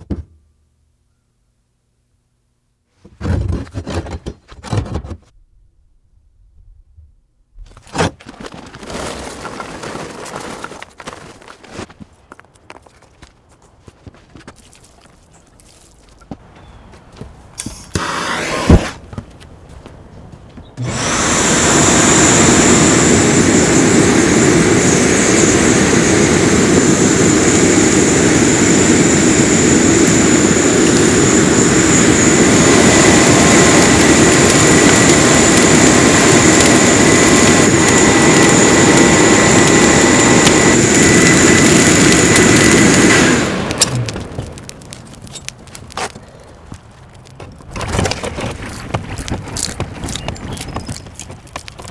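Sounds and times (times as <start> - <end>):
electric blower rushing air: 17.6 - 19.1, 20.8 - 44.6
high motor whine: 20.7 - 44.6.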